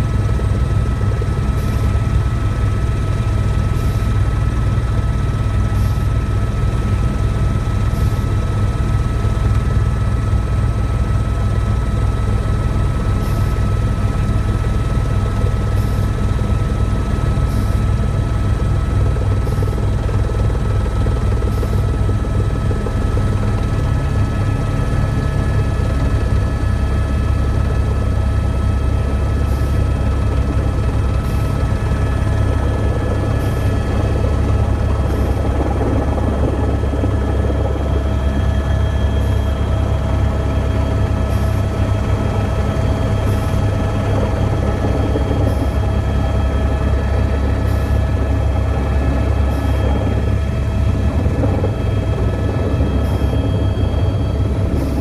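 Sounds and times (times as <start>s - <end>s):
helicopter cabin rumble: 0.0s - 55.0s.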